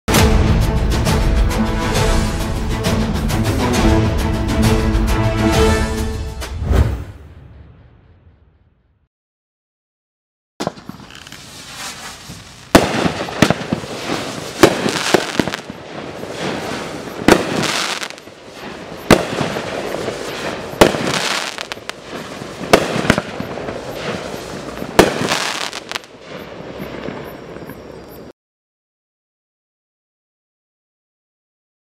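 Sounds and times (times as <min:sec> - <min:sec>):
fireworks bursts: 0:10.6 - 0:27.9
fireworks crackle: 0:10.6 - 0:28.3.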